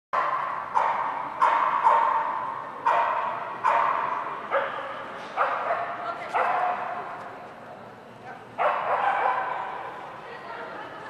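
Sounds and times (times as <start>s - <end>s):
dog barking in echoing hall: 0.2s - 7.2s, 8.3s - 10.0s.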